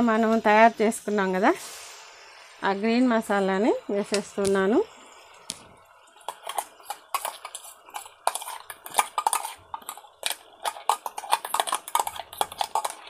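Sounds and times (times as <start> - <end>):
paste frying in oil: 0.0 - 13.0
spatula scraping metal pan: 6.3 - 13.0.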